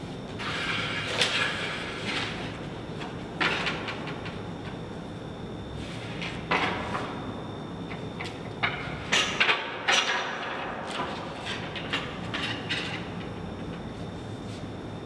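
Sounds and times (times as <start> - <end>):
room noise: 0.0 - 15.0.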